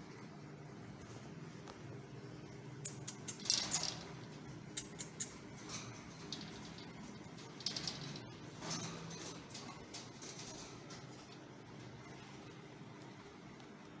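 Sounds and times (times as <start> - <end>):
low steady hum: 0.0 - 14.0
rabbit rustling on wire mesh: 3.0 - 12.6.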